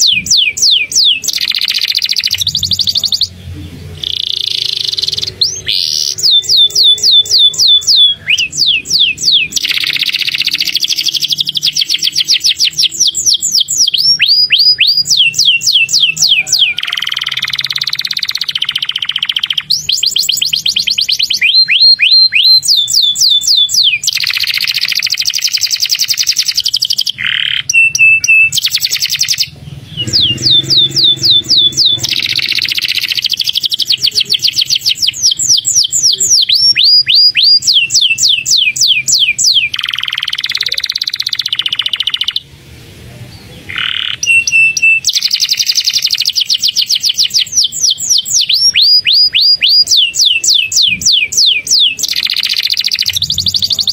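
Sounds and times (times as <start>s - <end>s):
canary singing: 0.0s - 42.6s, 43.3s - 53.9s.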